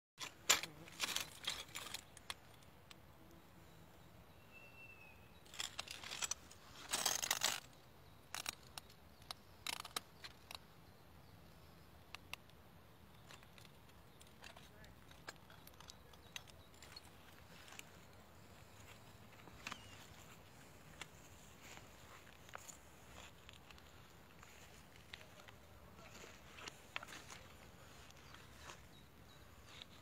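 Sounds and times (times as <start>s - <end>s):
broken glass clinking and crunching: 5.4s - 7.7s.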